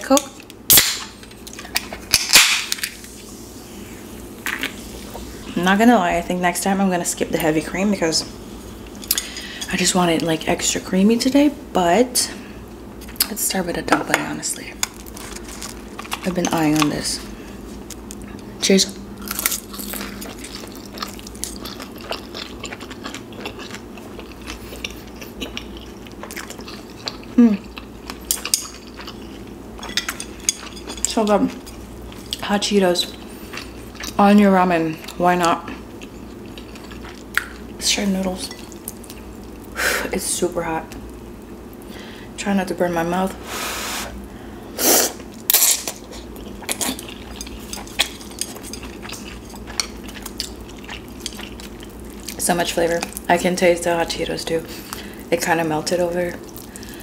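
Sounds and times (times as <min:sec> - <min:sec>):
person chewing: 0:14.8 - 0:16.9, 0:19.2 - 0:32.4, 0:33.2 - 0:34.2, 0:35.0 - 0:37.7, 0:45.0 - 0:52.4.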